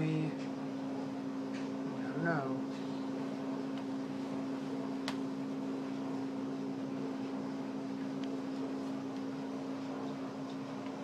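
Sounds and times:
machine hum: 0:00.0 - 0:11.0.

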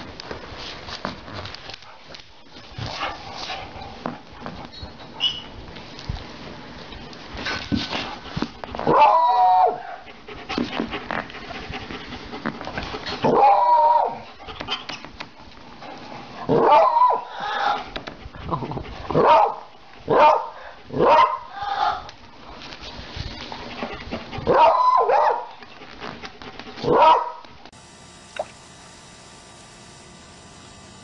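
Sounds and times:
dog howling barks: 0:08.8 - 0:10.0, 0:13.2 - 0:14.2, 0:16.5 - 0:17.9, 0:19.2 - 0:22.1, 0:24.5 - 0:25.5, 0:26.8 - 0:27.4.

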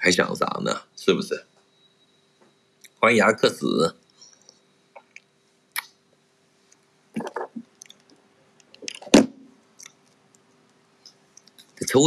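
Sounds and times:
faint steady hum: 0:00.0 - 0:12.0
wet chewing sounds: 0:07.2 - 0:09.1, 0:09.8 - 0:11.7.

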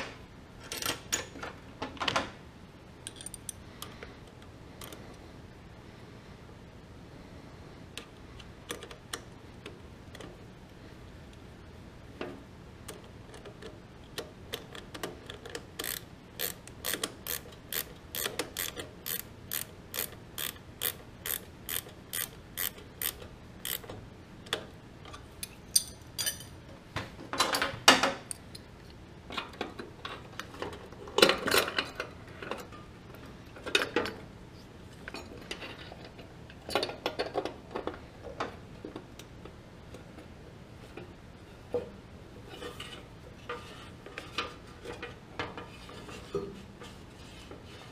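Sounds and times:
ratcheting wrench clicking: 0:15.4 - 0:23.9.

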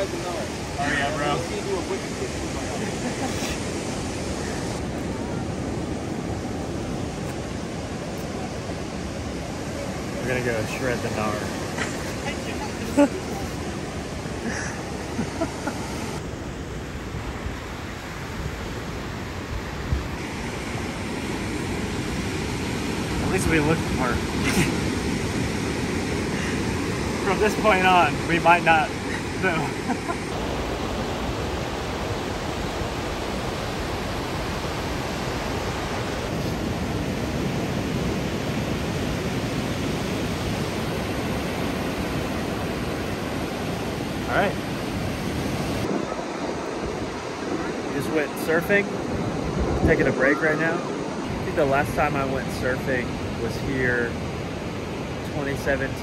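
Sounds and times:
ocean surf breaking on beach: 0:00.0 - 0:56.0
wind buffeting microphone: 0:28.1 - 0:50.2.

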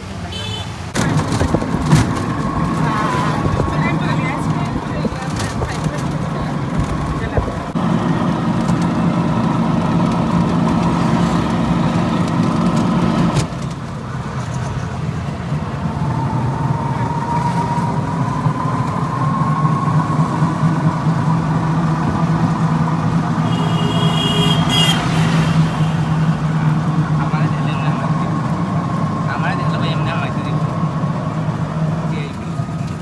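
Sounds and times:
vehicle engine running: 0:00.9 - 0:33.0
rising whine: 0:15.2 - 0:23.4.

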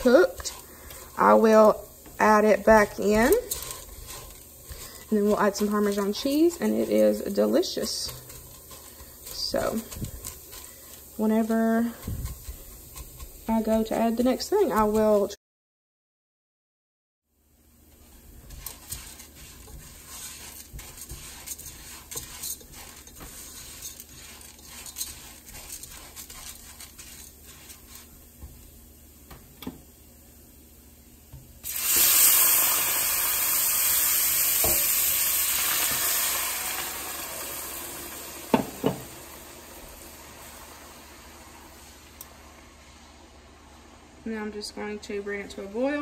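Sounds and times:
spatula scraping in a pot: 0:00.0 - 0:15.4, 0:17.9 - 0:29.0.

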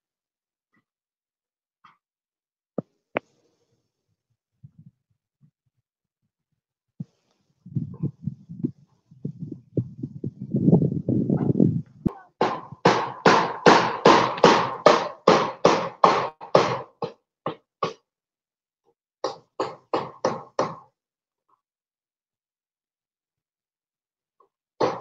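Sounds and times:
hammer blows: 0:12.1 - 0:17.2.

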